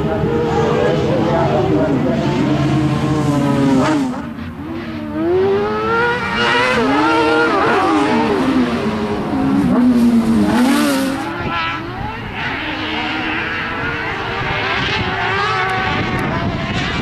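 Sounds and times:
buggy engines revving: 0.0 - 17.0.

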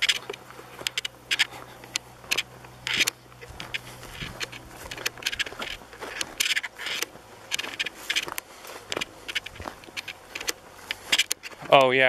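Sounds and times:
footsteps crunching through dry grass: 0.0 - 12.0.

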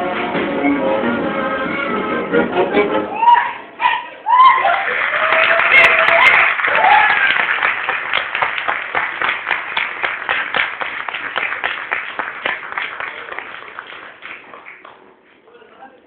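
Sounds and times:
audience applause: 4.3 - 15.3.

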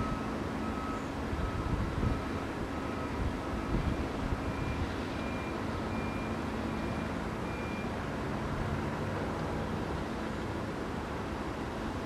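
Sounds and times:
high-pitched reversing alarm: 0.0 - 7.9
low-pitched reversing alarm: 0.0 - 8.1.

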